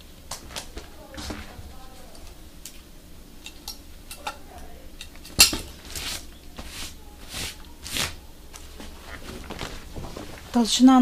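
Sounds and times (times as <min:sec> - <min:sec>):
leather rustling swishes: 0:05.8 - 0:10.6.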